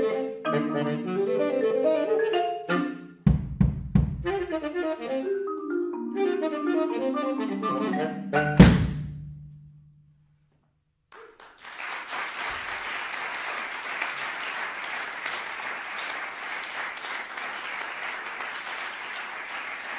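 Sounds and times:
audience applauding: 11.2s - 19.9s.

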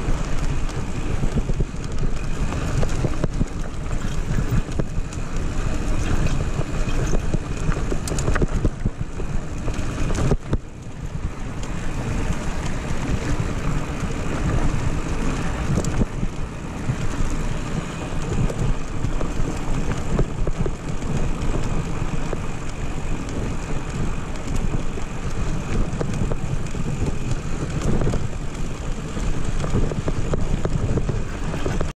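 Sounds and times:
bike knocking and rattling: 0.0s - 31.9s
tyres rushing on gravel: 0.0s - 31.9s
wind buffeting microphone: 0.0s - 31.9s.

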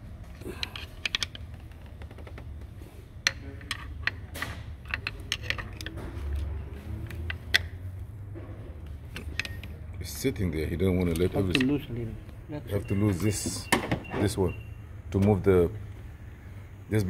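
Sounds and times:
hand tools clicking and tapping: 0.3s - 2.4s, 3.2s - 7.8s, 9.1s - 9.9s, 11.0s - 11.8s.

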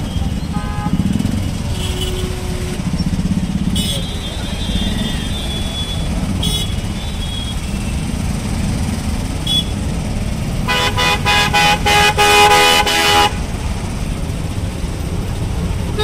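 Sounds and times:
vehicle horns honking: 0.0s - 8.0s, 9.4s - 9.8s, 10.6s - 13.5s
street traffic rumble: 0.0s - 16.0s.

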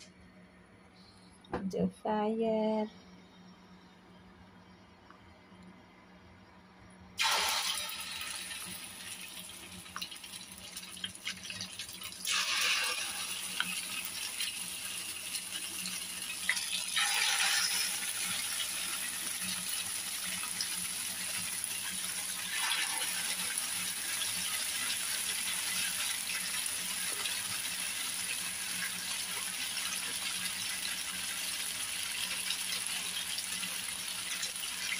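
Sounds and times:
batter sizzling in hot oil: 7.2s - 34.9s.

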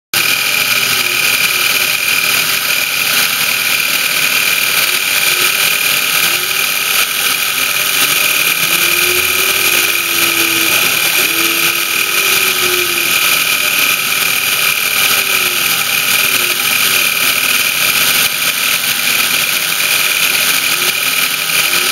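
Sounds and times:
gliding motor tones: 0.2s - 21.9s
milling machine spindle whine: 0.2s - 21.9s.

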